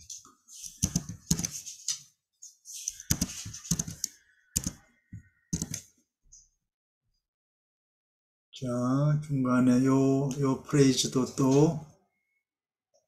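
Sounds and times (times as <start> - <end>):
typing on computer keyboard: 0.7 - 1.6, 2.8 - 4.8, 5.5 - 5.9.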